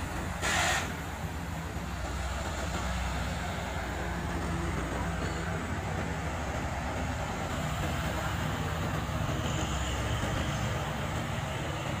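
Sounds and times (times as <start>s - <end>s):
road noise: 0.0s - 12.0s
truck diesel engines: 0.0s - 12.0s.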